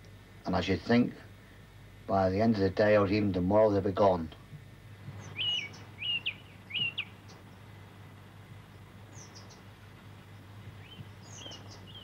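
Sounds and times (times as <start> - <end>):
birds giving thin high chirps: 5.1 - 7.7, 8.7 - 12.0.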